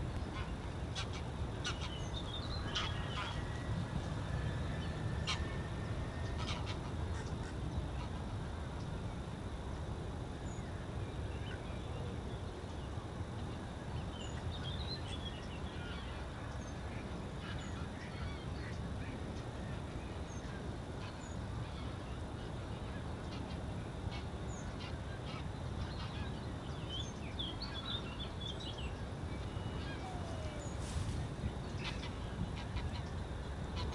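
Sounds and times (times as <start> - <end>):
geese honking: 0.3 - 3.7.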